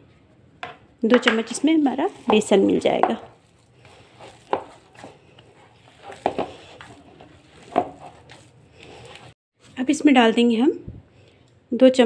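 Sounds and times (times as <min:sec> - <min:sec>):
hands squelching wet mixture: 0:01.5 - 0:09.4.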